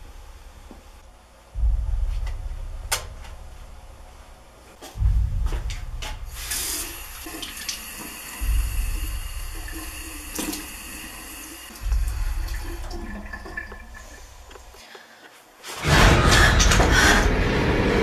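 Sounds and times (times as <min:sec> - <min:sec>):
low droning background music: 0:00.0 - 0:14.9
tap running into sink: 0:07.2 - 0:14.6.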